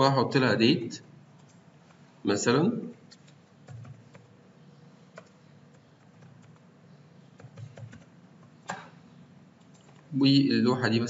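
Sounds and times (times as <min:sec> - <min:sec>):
computer keyboard typing: 0:03.1 - 0:04.3, 0:05.1 - 0:06.7, 0:07.3 - 0:08.9, 0:09.6 - 0:10.1.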